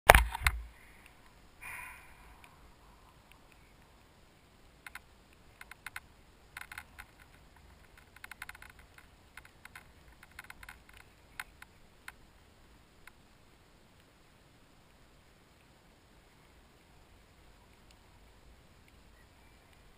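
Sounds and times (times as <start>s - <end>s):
sharp clicks and ticks: 4.8s - 12.2s.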